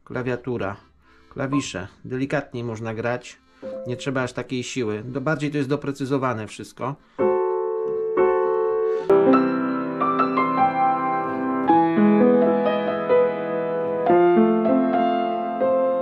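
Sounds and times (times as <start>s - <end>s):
piano chords ringing: 1.4s - 1.9s, 3.6s - 4.6s, 7.2s - 16.0s.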